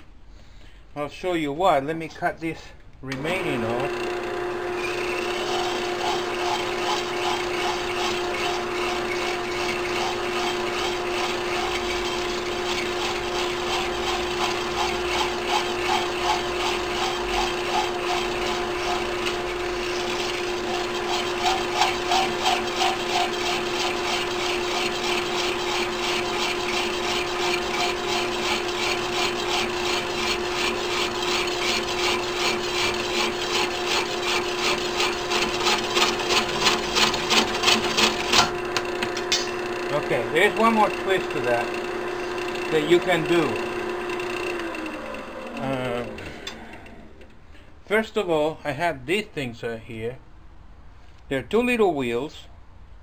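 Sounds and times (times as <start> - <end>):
hacksaw cutting metal: 4.8 - 39.6.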